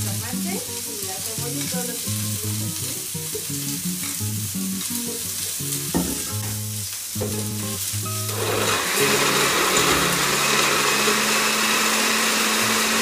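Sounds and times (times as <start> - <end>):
knock on glass jar: 5.9 - 6.3
blender motor whirring: 8.2 - 13.0.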